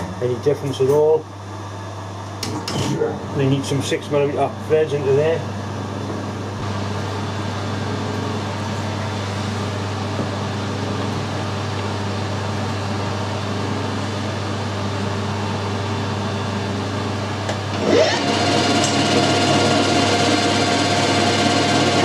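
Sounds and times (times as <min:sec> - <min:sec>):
workshop machinery humming: 0:00.0 - 0:22.0
lathe turning: 0:17.7 - 0:22.0.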